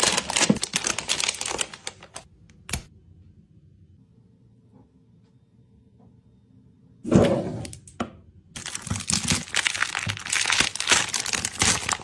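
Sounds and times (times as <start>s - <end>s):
plastic wrapper tearing and crinkling: 0.0s - 2.8s, 8.6s - 12.0s.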